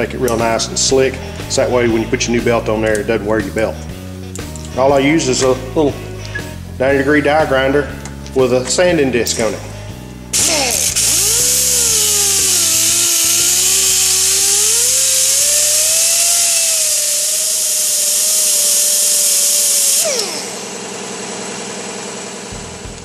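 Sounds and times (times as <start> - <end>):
die grinder sanding metal: 8.4 - 22.7.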